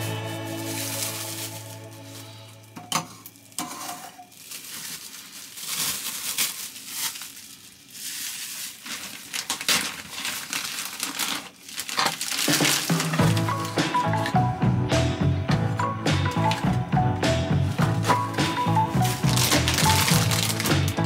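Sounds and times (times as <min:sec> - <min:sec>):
background music: 0:00.0 - 0:03.5, 0:12.6 - 0:21.0
plastic wrap crinkling: 0:00.0 - 0:14.3, 0:16.3 - 0:16.8, 0:17.6 - 0:21.0.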